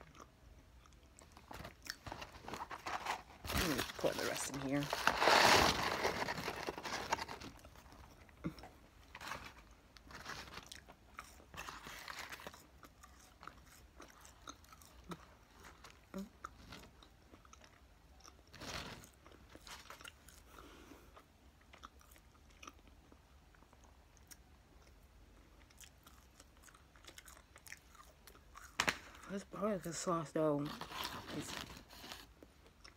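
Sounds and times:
person chewing and biting: 0.0s - 3.7s, 6.8s - 29.3s
food packaging rustling: 1.2s - 8.1s, 9.0s - 12.6s, 18.5s - 20.2s, 30.6s - 32.4s.

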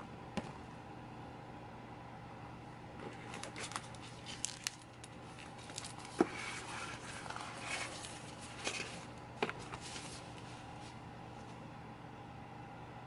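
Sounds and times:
plastic crinkling and rustling: 3.0s - 11.0s.

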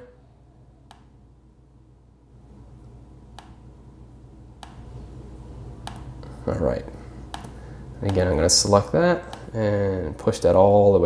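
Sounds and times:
low steady hum: 0.0s - 11.0s
computer mouse clicks: 0.9s - 1.1s, 5.8s - 6.1s, 7.3s - 8.2s.

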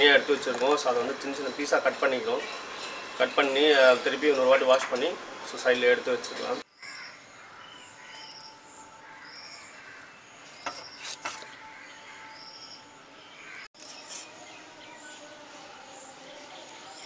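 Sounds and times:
small birds chirping: 6.3s - 17.0s.

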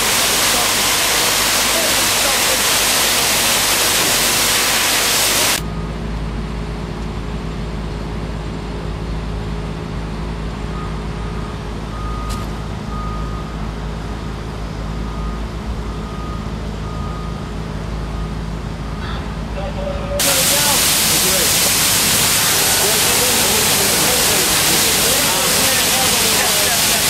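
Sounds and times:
loud hiss of hose spray: 0.0s - 5.6s, 20.2s - 27.0s
diesel engines idling rumble: 5.7s - 27.0s.

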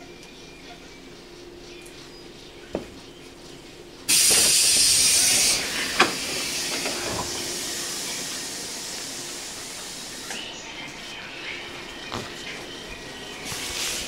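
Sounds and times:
compressed air hissing: 4.1s - 10.6s, 12.1s - 14.0s.

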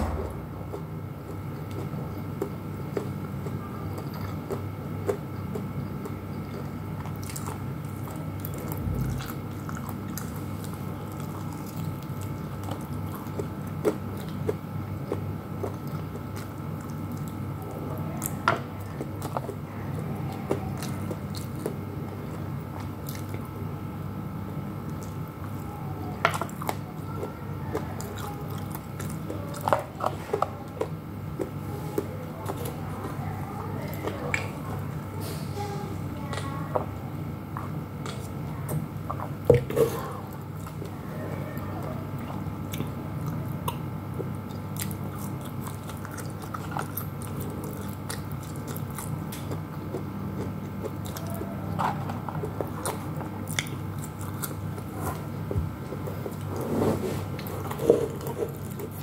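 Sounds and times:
person chewing and biting food: 0.0s - 23.6s, 42.3s - 59.0s
steady low hum: 0.0s - 59.0s.

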